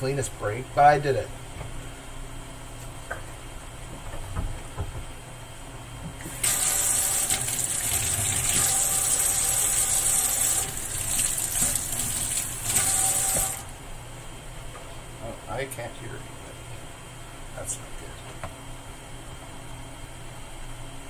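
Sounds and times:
tap water running into sink: 6.3 - 13.7.

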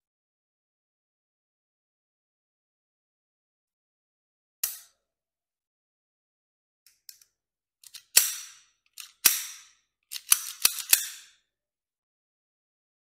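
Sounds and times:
pistol slide clicks and clacks: 6.9 - 11.4.

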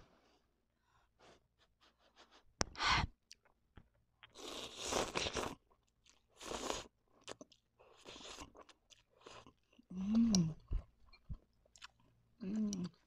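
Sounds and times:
noodle slurping: 4.4 - 5.6
wet chewing: 7.2 - 13.0.

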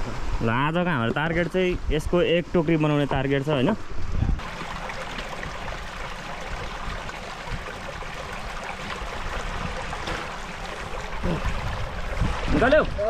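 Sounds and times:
river water rushing over rocks: 4.4 - 12.5.

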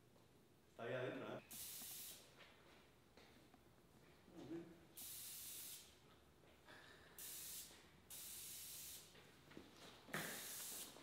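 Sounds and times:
aerosol spray can hissing: 1.5 - 2.3, 5.0 - 5.9, 7.2 - 9.1, 10.2 - 11.0.

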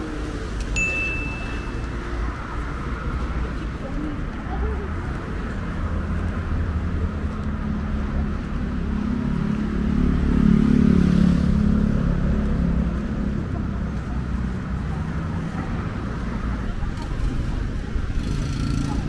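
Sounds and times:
low rumble of street traffic: 0.0 - 19.0
vehicle passing close by: 5.6 - 13.7.

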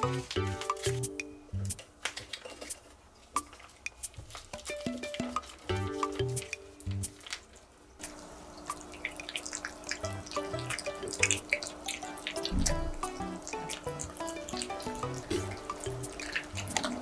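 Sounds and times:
soft background music: 0.0 - 1.8, 3.5 - 7.3, 9.9 - 17.0
cats eating wet food: 6.9 - 17.0.

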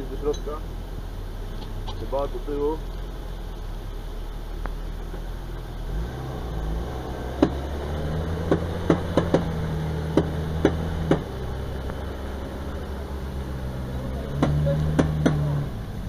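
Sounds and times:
off-road vehicle engine running: 0.0 - 16.0
sharp knocks: 7.4 - 7.6, 8.4 - 11.4, 14.4 - 15.5.

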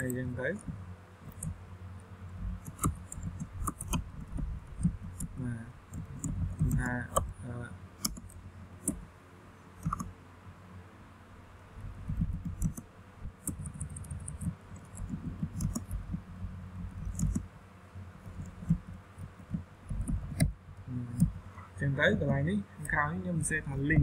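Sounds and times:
keyboard typing clicks: 2.6 - 7.3, 8.0 - 9.0, 9.8 - 10.1, 12.1 - 16.2, 16.9 - 17.5.

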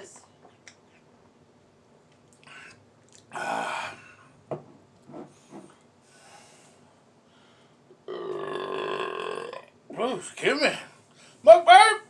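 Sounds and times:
man exhaling ahh: 2.5 - 4.3.

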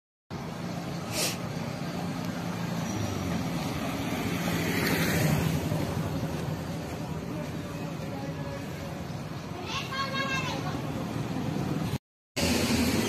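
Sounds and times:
steady hum of road traffic: 0.3 - 13.0
vehicle passing close: 0.6 - 6.8.

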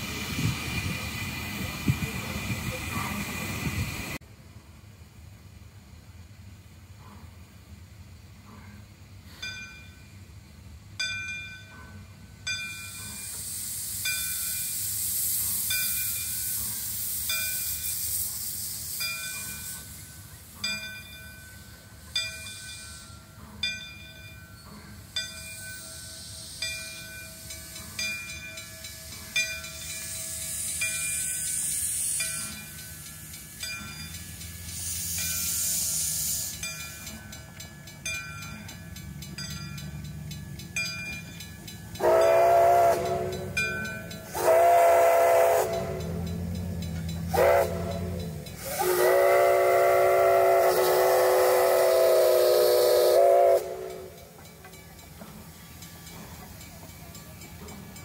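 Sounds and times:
steam engine chuffing: 0.0 - 4.2, 11.6 - 58.0
steam hissing: 0.0 - 4.2, 11.9 - 58.0
locomotive bell ringing: 9.3 - 10.4, 11.0 - 18.1, 18.8 - 58.0
steam whistle blasts: 34.5 - 36.7, 42.0 - 54.4.

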